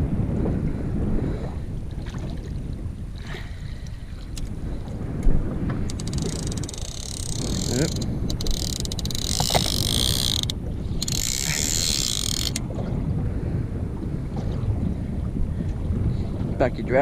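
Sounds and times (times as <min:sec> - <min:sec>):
fishing reel ratchet buzzing: 0:05.9 - 0:12.6.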